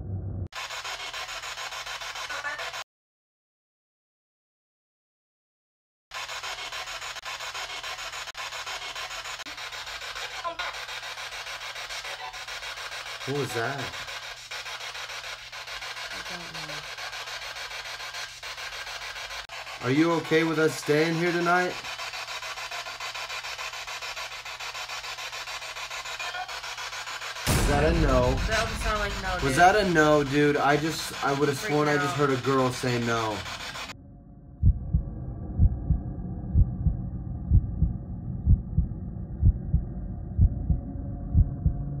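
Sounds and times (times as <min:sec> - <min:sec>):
choppy radio static: 0:00.6 - 0:02.8, 0:06.1 - 0:34.0
voice snatch through radio: 0:00.6 - 0:02.8, 0:06.2 - 0:33.9
heartbeat thumps: 0:27.5 - 0:31.1, 0:34.6 - 0:42.0.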